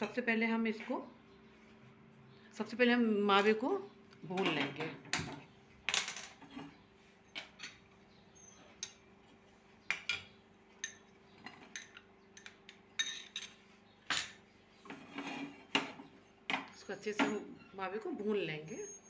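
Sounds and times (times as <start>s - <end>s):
glass bowls clinking: 9.9s - 13.6s.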